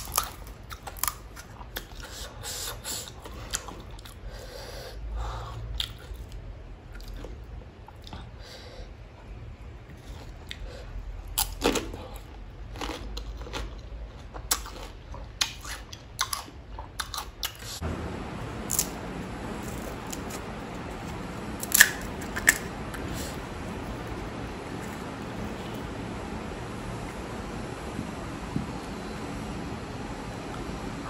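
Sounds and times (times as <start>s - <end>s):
crunchy eating: 0.0s - 4.3s, 9.9s - 17.8s, 18.4s - 27.4s.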